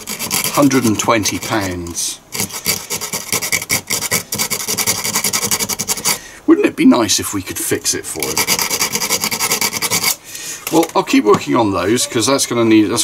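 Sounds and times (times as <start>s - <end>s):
abrasive pad scrubbing circuit board: 0.0s - 6.2s, 8.2s - 10.2s.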